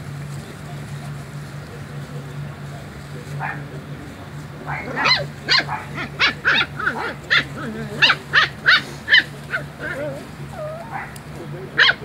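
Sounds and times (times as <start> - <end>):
steady low hum: 0.0 - 12.0
puppies yipping and barking: 4.6 - 12.0.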